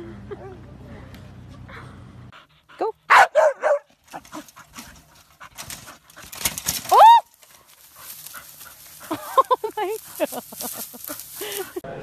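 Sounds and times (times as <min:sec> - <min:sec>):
dogs barking and yipping: 0:03.1 - 0:11.8.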